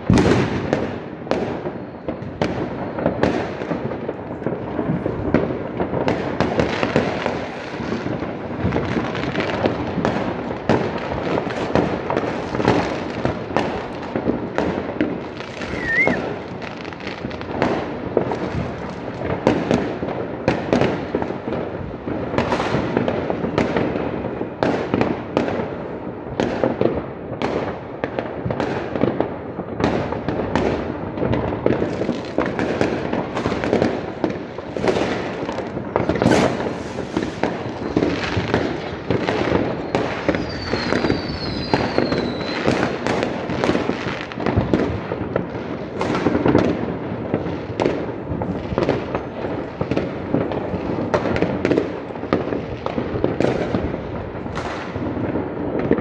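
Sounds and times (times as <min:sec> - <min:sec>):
fireworks bangs pops and crackle: 0:00.0 - 0:56.0.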